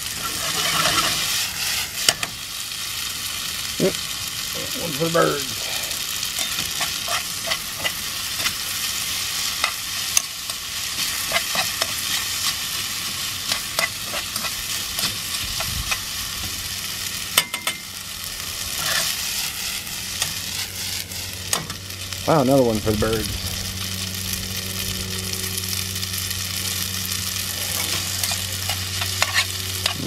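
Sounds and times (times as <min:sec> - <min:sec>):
spaghetti sizzling in frying pan: 0:00.0 - 0:30.0
metal spoon scraping pan: 0:00.2 - 0:01.8, 0:06.4 - 0:08.6, 0:11.0 - 0:12.6, 0:13.4 - 0:16.0, 0:27.7 - 0:30.0.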